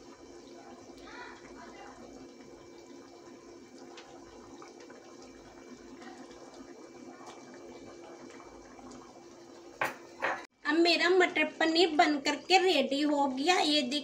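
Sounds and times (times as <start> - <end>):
gravy simmering and bubbling: 0.0 - 10.6.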